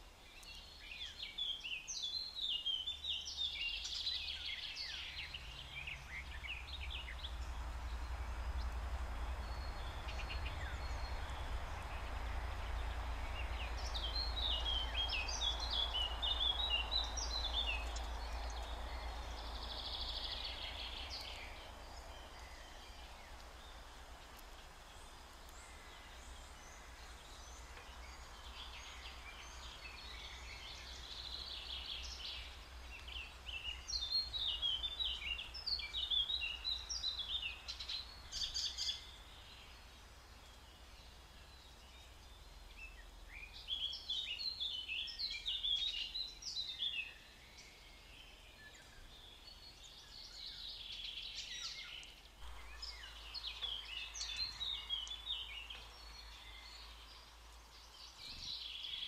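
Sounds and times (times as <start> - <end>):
faint low hum: 0.0 - 46.3
songbirds chirping: 0.0 - 59.0.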